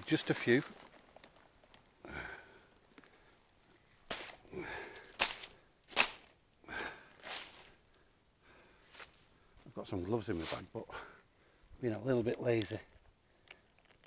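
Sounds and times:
dry leaves crunching underfoot: 0.0 - 1.9, 4.0 - 6.4, 7.2 - 7.8, 10.3 - 10.7.

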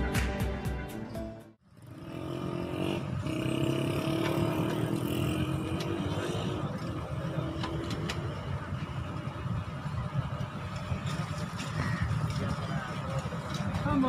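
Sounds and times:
diesel locomotive engine rumble: 3.1 - 14.0.

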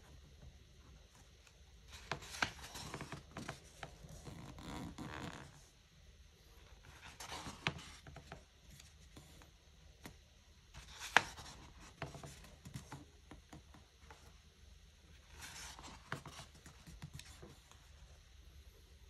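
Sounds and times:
book pages rustling: 1.2 - 5.5, 6.8 - 10.2, 10.8 - 14.3, 15.2 - 17.9.

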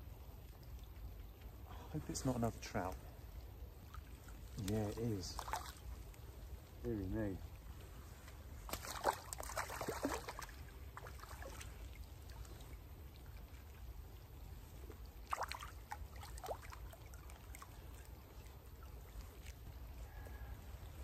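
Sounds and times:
low steady rumble: 0.0 - 21.0
fish thrashing and splashing: 5.3 - 6.2, 8.6 - 13.6, 14.8 - 20.0.

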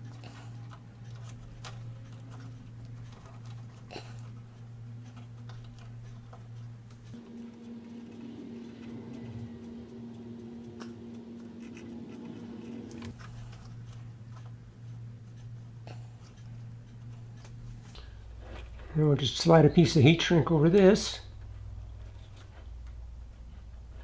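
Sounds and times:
clicks and scratches of twisting wire: 0.0 - 7.2
steady low electrical hum: 0.0 - 24.0.

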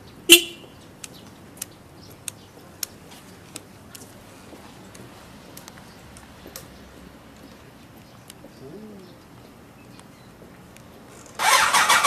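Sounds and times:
pigeon cooing: 8.4 - 9.4.

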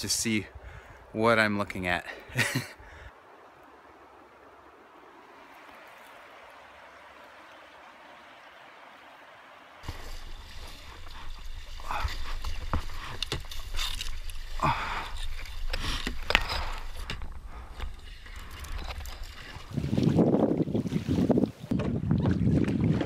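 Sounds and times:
creek rushing: 1.1 - 17.1
knocks and scrapes on kayak: 9.8 - 20.1
paddle strokes splashing: 9.8 - 21.7
wind rumble on microphone: 16.6 - 23.0.

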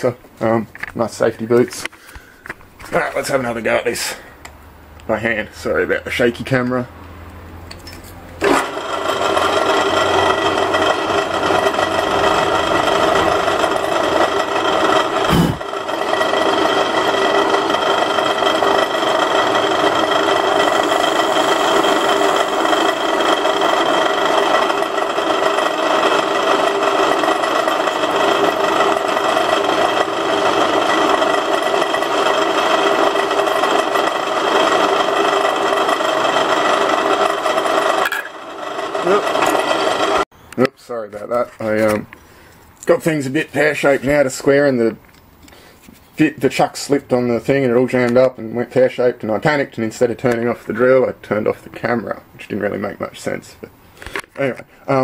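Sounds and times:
drill press motor hum: 7.9 - 40.3
rasping metal cutting: 8.4 - 40.3.

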